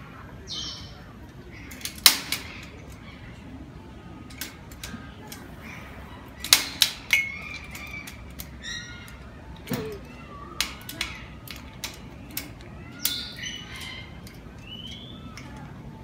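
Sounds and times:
beak clicking on wire mesh: 0:06.4 - 0:15.7
cockatoo high calls: 0:12.7 - 0:15.6.

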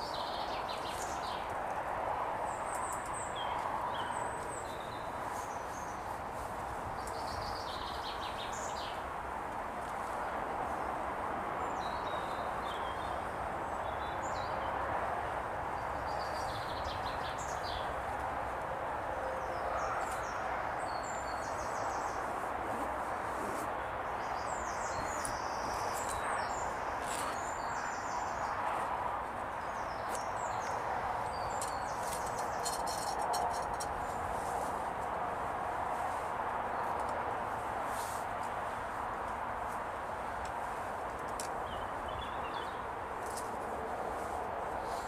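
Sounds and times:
small birds chirping and trilling: 0:00.0 - 0:01.6, 0:02.5 - 0:09.0, 0:15.8 - 0:18.2, 0:19.4 - 0:22.3, 0:23.4 - 0:34.6, 0:41.1 - 0:45.0.

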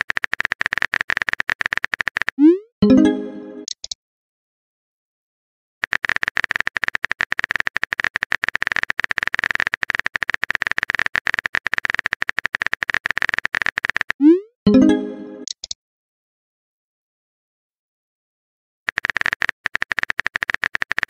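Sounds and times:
keyboard typing clicks: 0:00.0 - 0:04.0, 0:05.8 - 0:15.8, 0:18.9 - 0:21.0.

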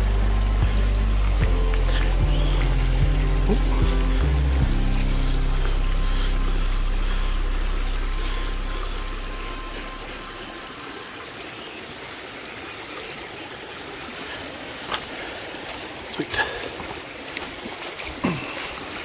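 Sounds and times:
background music: 0:00.0 - 0:11.2
stream rushing: 0:00.0 - 0:19.0.

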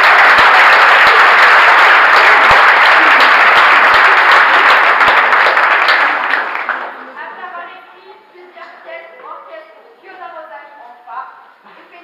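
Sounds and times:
audience applause: 0:00.0 - 0:07.2.

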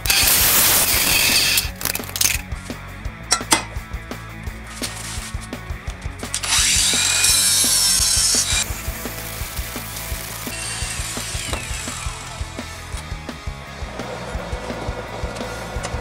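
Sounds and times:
bubble wrap crinkling: 0:01.6 - 0:02.4.

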